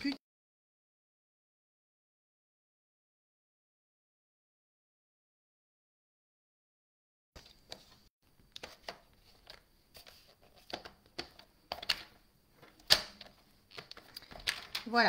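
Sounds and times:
paper rustling: 0:07.4 - 0:11.0.

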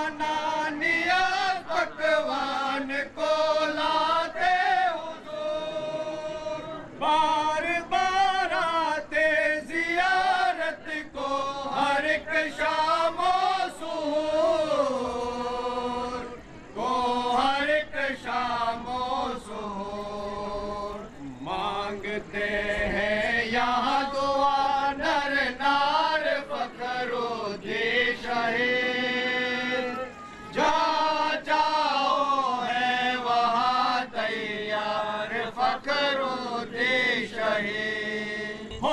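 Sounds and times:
voices chanting: 0:00.0 - 0:38.9.

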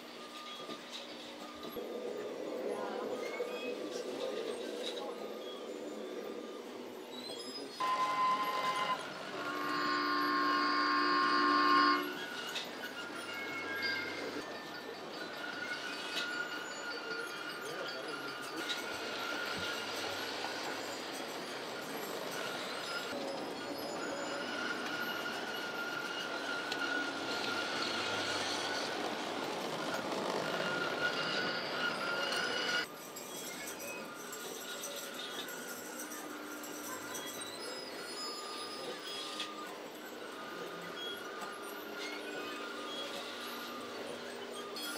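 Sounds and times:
wheels running on rails: 0:00.0 - 0:44.9
model locomotive motor whine: 0:07.6 - 0:44.9
horn-like steady tones: 0:07.8 - 0:12.6.

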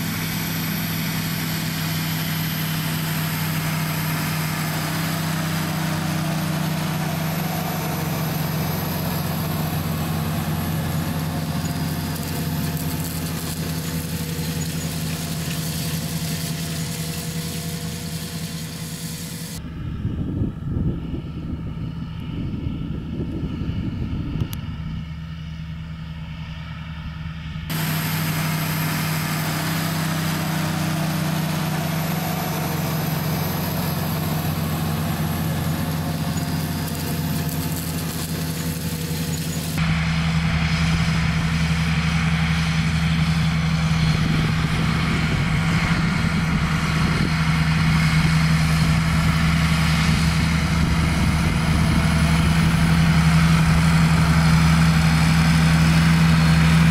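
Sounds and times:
tractor diesel engine running: 0:00.0 - 0:56.9
loud even hiss: 0:27.7 - 0:40.2.

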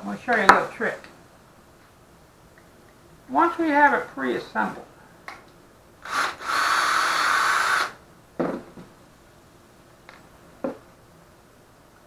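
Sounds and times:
cordless drill driving screw: 0:06.0 - 0:08.0
knocks on wooden workbench: 0:08.4 - 0:08.9.

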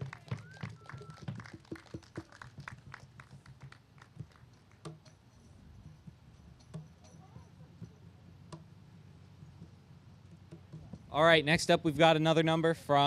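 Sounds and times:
crowd clapping: 0:00.0 - 0:04.9.

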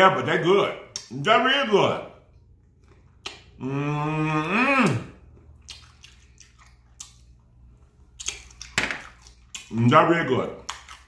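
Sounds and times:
wet mouth smacks: 0:00.9 - 0:01.1, 0:02.9 - 0:03.6, 0:05.6 - 0:07.4, 0:08.2 - 0:09.7, 0:10.6 - 0:11.0
man humming mmm: 0:03.6 - 0:05.2.

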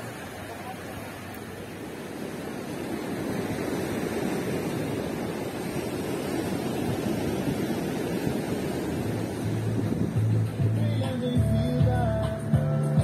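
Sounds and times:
ocean surf rushing: 0:00.0 - 0:13.0
wind on microphone: 0:02.2 - 0:11.3.

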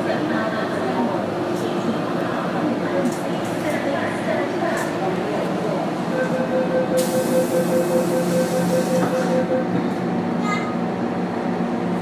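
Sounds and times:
train running rumble: 0:00.0 - 0:12.0
pulsing whine: 0:06.1 - 0:09.8.

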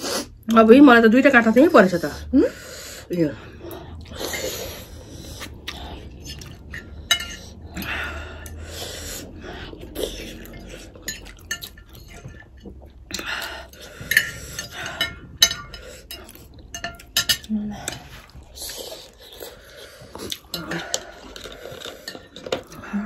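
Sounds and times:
cutlery clinking on plates: 0:06.3 - 0:07.6.

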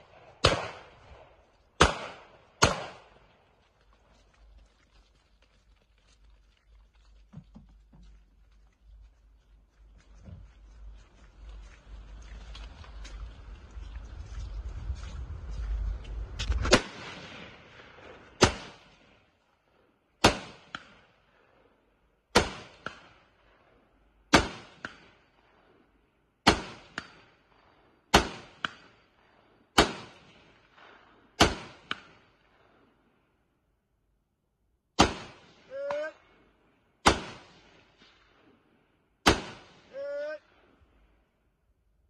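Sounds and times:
rifle shots: 0:00.0 - 0:03.4, 0:16.6 - 0:19.2, 0:20.2 - 0:21.1, 0:22.3 - 0:23.2, 0:24.3 - 0:25.6, 0:26.4 - 0:27.3, 0:28.1 - 0:29.0, 0:29.8 - 0:32.3, 0:35.0 - 0:35.7, 0:37.0 - 0:38.4, 0:39.2 - 0:40.0
low rumbling noise: 0:00.0 - 0:18.5.

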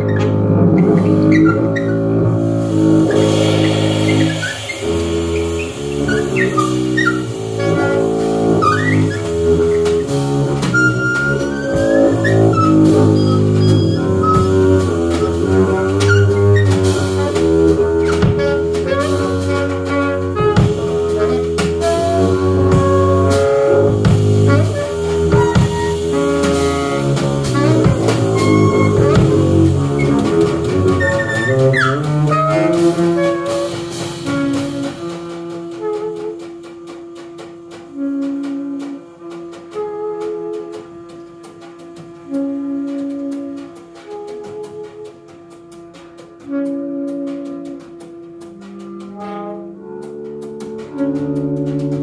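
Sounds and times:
upright bass: 0:00.0 - 0:35.0
drum kit: 0:00.0 - 0:52.0
saxophone: 0:00.0 - 0:52.0.

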